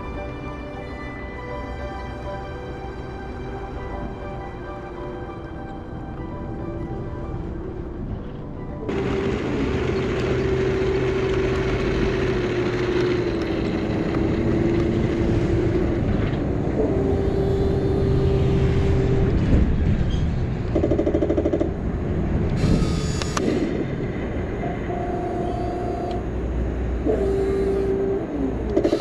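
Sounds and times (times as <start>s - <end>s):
rapid mechanical rattle: 8.9s - 15.3s.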